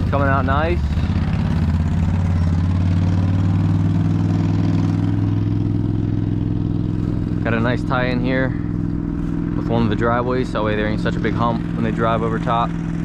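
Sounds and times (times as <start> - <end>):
diesel engine running steadily: 0.0 - 13.0.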